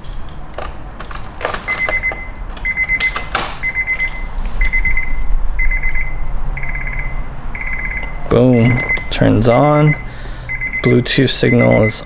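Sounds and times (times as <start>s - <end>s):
keys jangling and clicking: 0.0s - 3.4s
car warning buzzer beeping: 1.7s - 12.0s.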